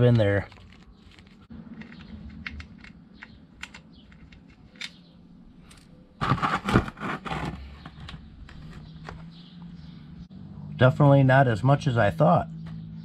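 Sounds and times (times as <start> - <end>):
clatter of handling: 0.2 - 5.0
screwdriver metal ticks: 1.8 - 5.1.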